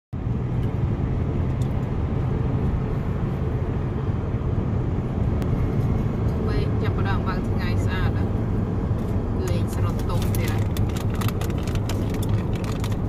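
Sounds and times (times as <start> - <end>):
car tyre and engine rumble: 0.2 - 13.0.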